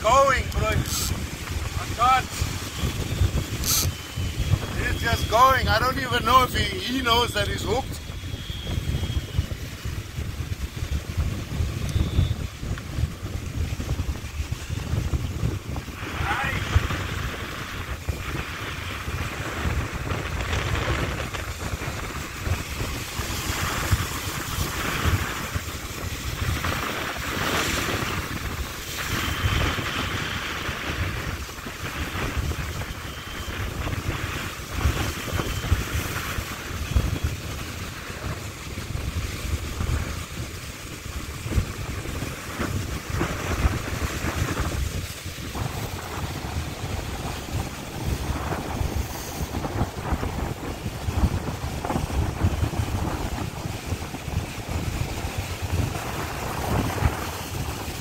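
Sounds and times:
waves breaking on rocks: 0.0 - 3.8
wind buffeting microphone: 0.0 - 58.0.

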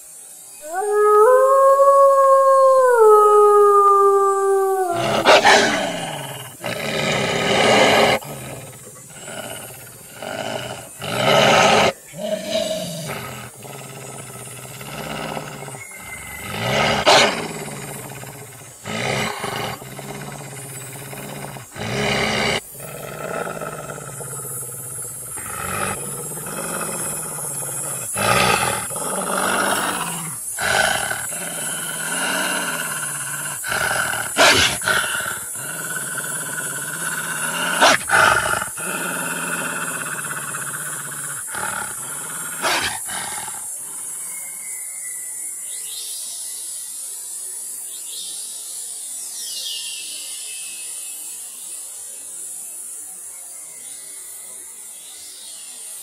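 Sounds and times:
wolf howling: 0.6 - 35.5
harsh growls and snarls: 0.6 - 44.6.

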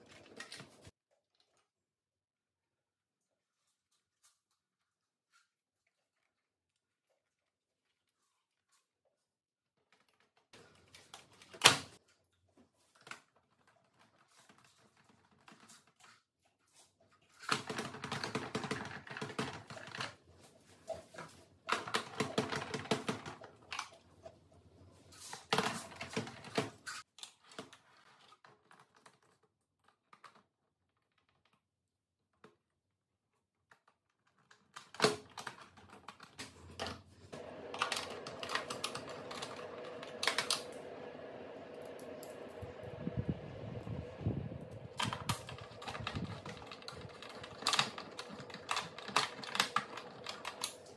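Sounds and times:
plastic parts clattering: 34.2 - 40.8, 44.8 - 50.9.

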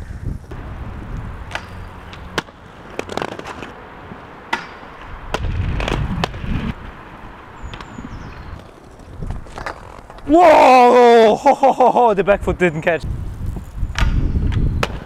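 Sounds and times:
low wind rumble on microphone: 0.0 - 2.4, 5.0 - 10.5, 12.2 - 15.0
inline skates rolling on concrete: 0.4 - 12.0, 13.1 - 15.0
sharp clacks of skate wheels: 1.2 - 10.4, 13.4 - 15.0.

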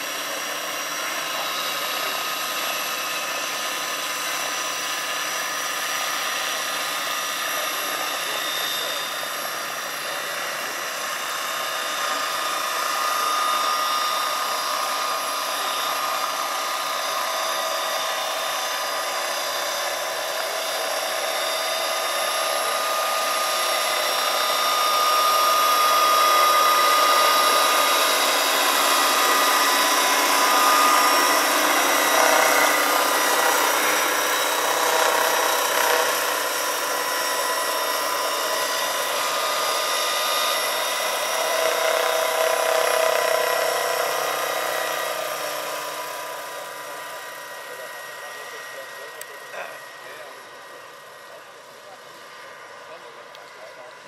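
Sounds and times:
electric motor and gear whine: 0.0 - 54.0.

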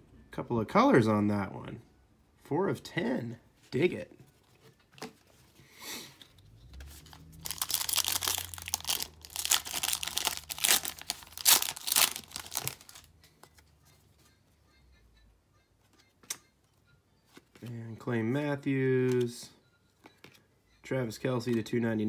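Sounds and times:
foil wrapper tearing and crinkling: 7.4 - 13.1.

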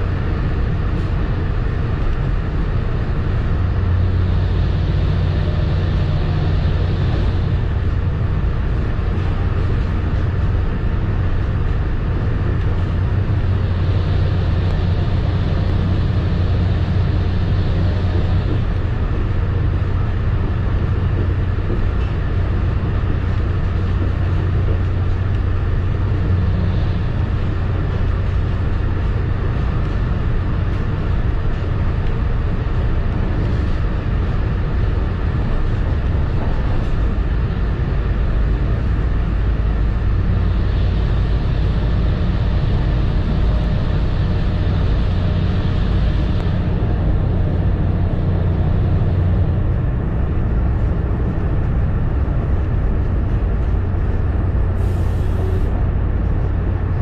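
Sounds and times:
train coach rumbling at speed: 0.0 - 57.0
hiss: 54.8 - 55.7.

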